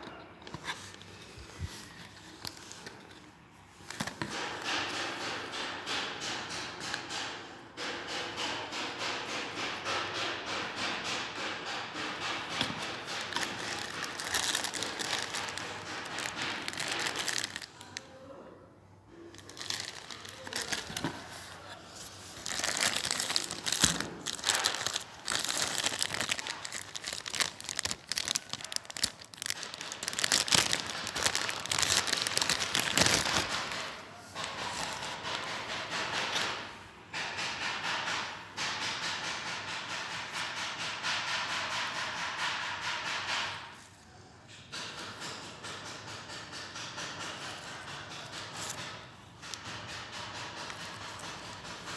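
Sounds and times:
plastic packaging crinkling: 12.2 - 18.1, 19.2 - 35.1, 48.2 - 48.9.

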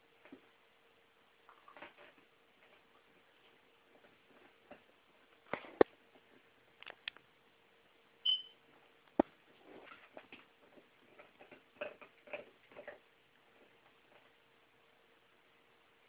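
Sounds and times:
dog chewing toy: 11.2 - 13.0.

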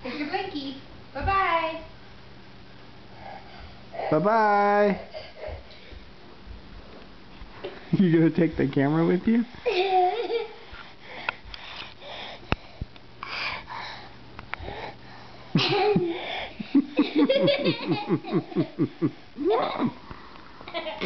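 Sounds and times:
toddler breathing and sniffing: 10.5 - 16.6.

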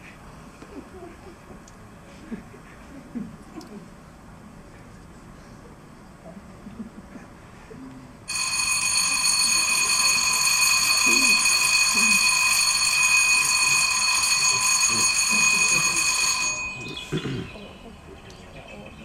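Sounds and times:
electric bell ringing: 8.3 - 17.6.

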